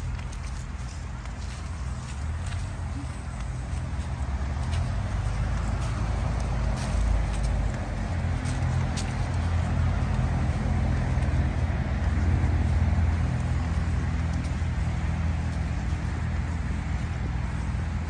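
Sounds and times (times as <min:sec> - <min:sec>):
low engine hum: 0:00.0 - 0:18.0
road traffic drone: 0:00.0 - 0:18.0.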